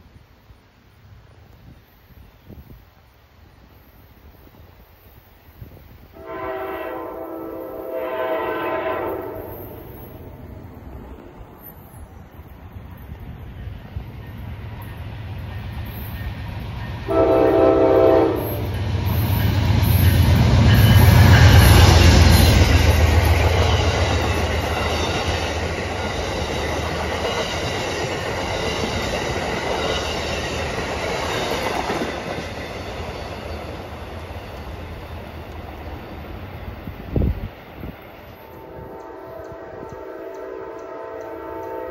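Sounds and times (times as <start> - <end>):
train wheels on rails: 0.0 - 41.9
train horn: 6.1 - 10.4, 17.0 - 18.8, 38.4 - 41.9.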